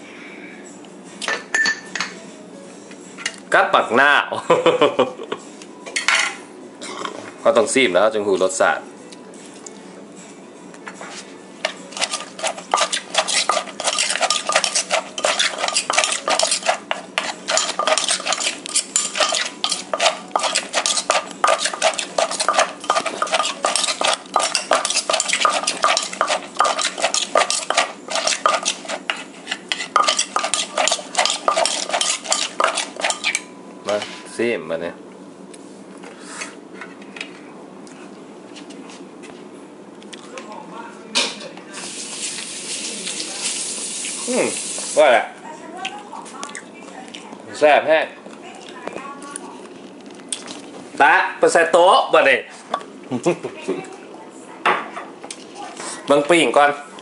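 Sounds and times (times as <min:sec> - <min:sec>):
spoon scraping bowl: 0:11.6 - 0:33.4.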